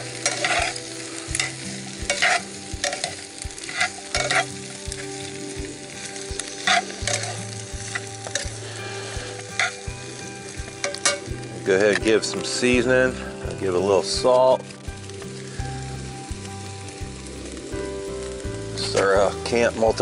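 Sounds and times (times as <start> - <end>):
tongs scraping a pot: 0.0 - 4.7
vegetables sizzling: 0.0 - 20.0.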